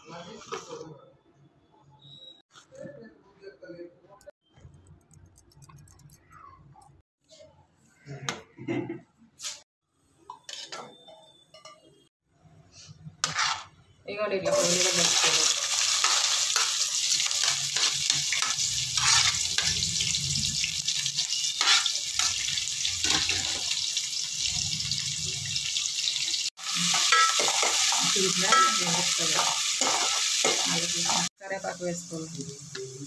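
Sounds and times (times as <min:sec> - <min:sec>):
ladle scraping pot: 0:13.2 - 0:13.8
onions sizzling in hot oil: 0:14.5 - 0:33.0.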